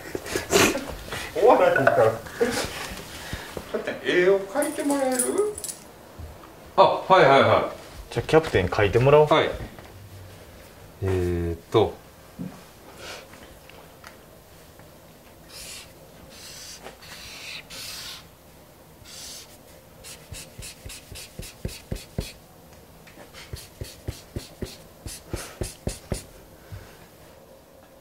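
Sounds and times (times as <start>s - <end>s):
marker drawing on paper: 15.5s - 18.3s, 19.0s - 22.4s, 23.4s - 26.3s
marker scribbling quickly: 15.5s - 18.3s, 19.0s - 22.4s, 23.4s - 26.3s.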